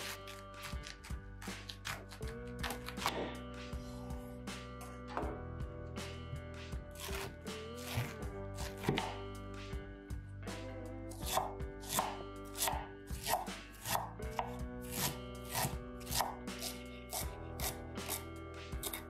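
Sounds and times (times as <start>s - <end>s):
background music: 0.0s - 19.0s
knife chopping on cutting board: 7.0s - 9.2s, 11.2s - 18.2s, 18.8s - 19.0s.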